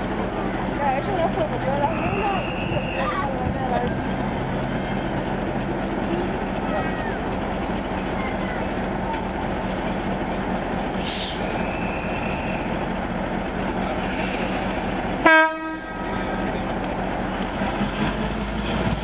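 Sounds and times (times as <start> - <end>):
diesel locomotive running: 0.0 - 19.0
brief hiss: 11.0 - 11.5
locomotive horn toot: 15.2 - 16.2.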